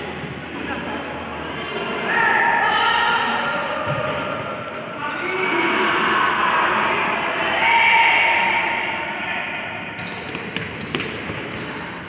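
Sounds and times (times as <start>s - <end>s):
players shouting in echoing hall: 0.0s - 12.0s.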